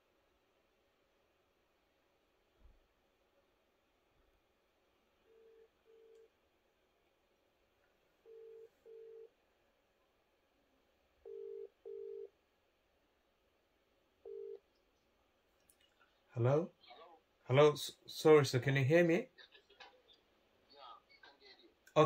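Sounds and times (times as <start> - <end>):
phone ringback tone: 5.3 - 6.2, 8.2 - 9.3, 11.2 - 12.3, 14.2 - 14.6.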